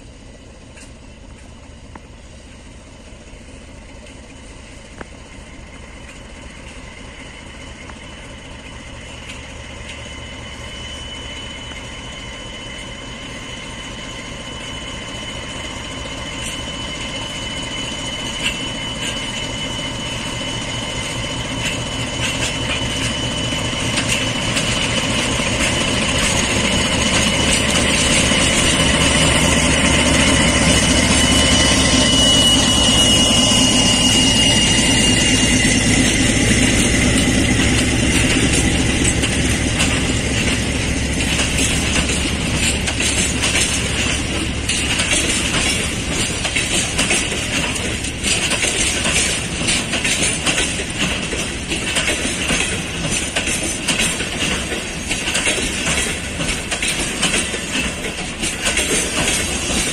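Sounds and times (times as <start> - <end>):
diesel locomotive engine: 0.0 - 59.9
train wheels rolling: 0.0 - 59.9
high whine: 6.9 - 48.3.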